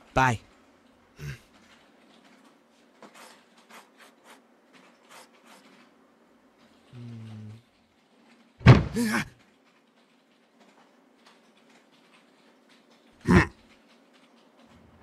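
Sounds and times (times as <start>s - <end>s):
pen scratching on paper: 3.1s - 4.4s, 5.0s - 5.7s.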